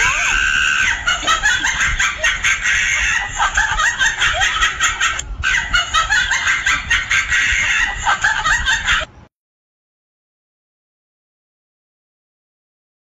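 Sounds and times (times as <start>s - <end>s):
comic cackling: 0.0s - 9.1s.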